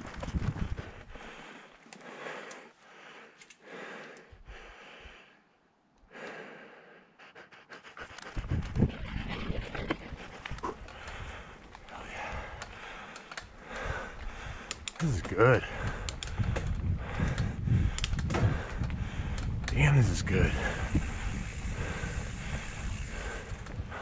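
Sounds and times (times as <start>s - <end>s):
bike clicks: 0.0s - 4.4s, 10.2s - 24.0s
person panting hard: 0.6s - 5.5s, 6.1s - 19.6s, 20.3s - 24.0s
low bike rumble: 20.5s - 24.0s.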